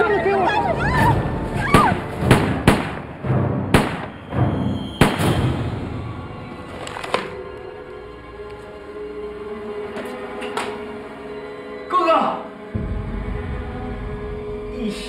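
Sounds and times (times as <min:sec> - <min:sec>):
gunshots: 0:01.7 - 0:04.2, 0:05.0 - 0:05.7
low rumble: 0:12.7 - 0:15.0.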